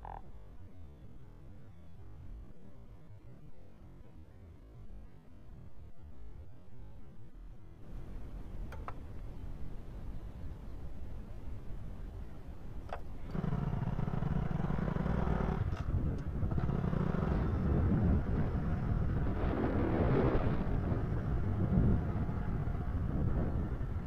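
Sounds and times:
small motorbike engine running: 12.9 - 24.0.

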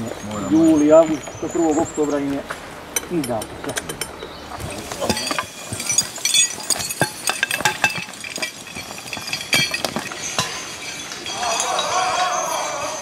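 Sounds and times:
metal chains clinking: 3.2 - 13.0.

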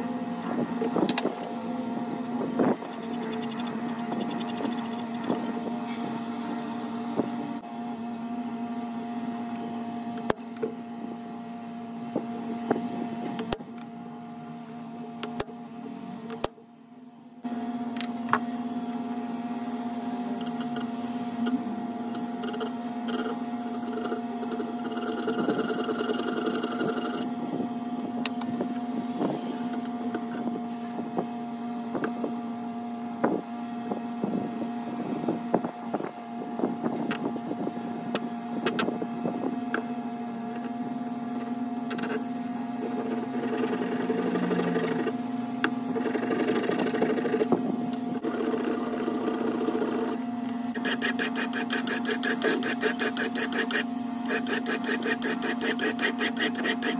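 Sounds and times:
droning hum: 0.0 - 56.9
file scraping metal: 50.8 - 56.9
tools clicking on wood and steel: 50.8 - 56.9.

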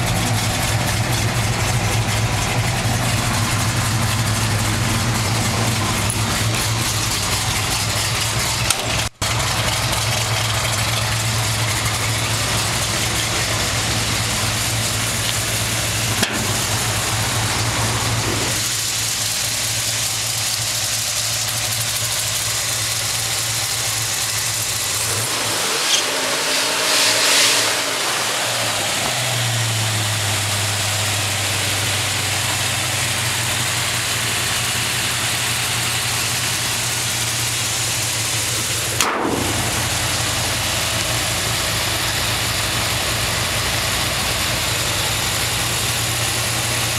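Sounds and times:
truck engine idling: 0.0 - 46.9
engine revving: 24.2 - 46.9.

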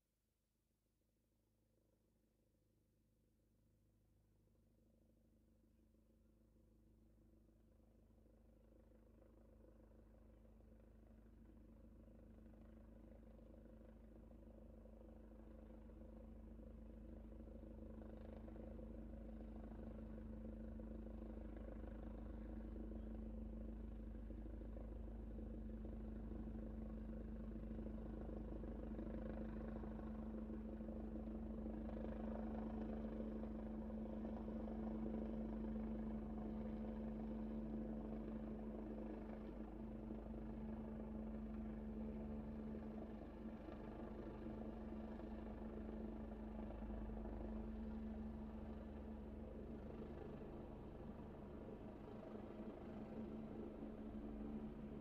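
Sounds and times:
helicopter rotor rumble: 11.2 - 55.0
helicopter engine hum: 17.8 - 55.0.

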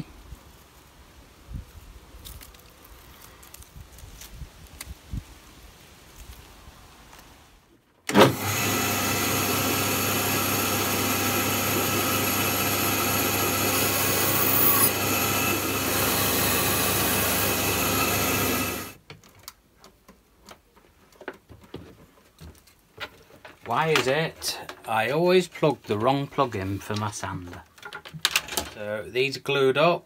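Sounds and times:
bandsaw cutting wood: 8.1 - 19.0.

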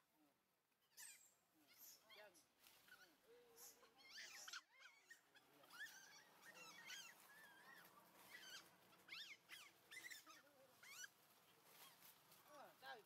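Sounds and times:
high squeaky animal chirps: 0.9 - 11.2.

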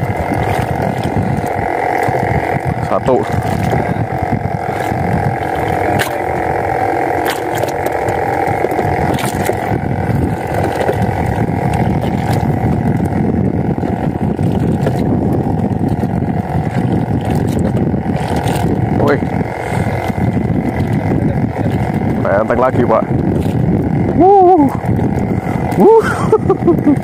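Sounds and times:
boat engine idling: 0.0 - 27.0.

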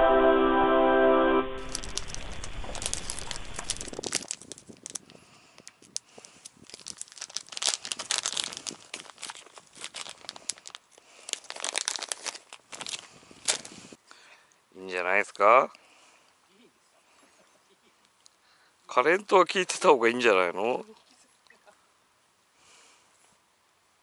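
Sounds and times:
plastic packaging crinkling: 1.6 - 13.8.

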